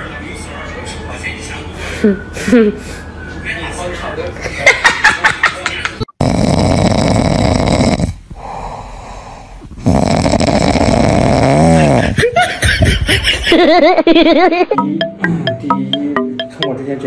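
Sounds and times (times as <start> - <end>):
puppy snoring: 6.2 - 12.2.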